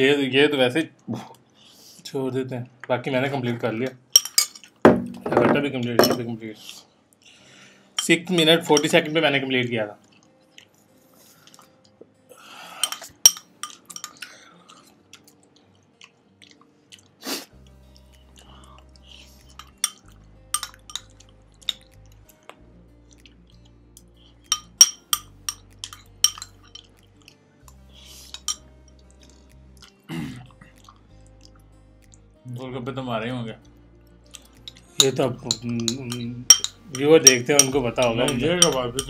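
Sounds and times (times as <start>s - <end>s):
chewing and crunching: 10.0s - 12.0s, 12.9s - 24.5s, 25.6s - 32.3s
spoon clicking against glass bowl: 12.8s - 14.2s, 19.5s - 22.0s, 24.5s - 27.0s, 28.3s - 28.7s, 34.4s - 39.0s
background music bass line: 17.6s - 39.0s.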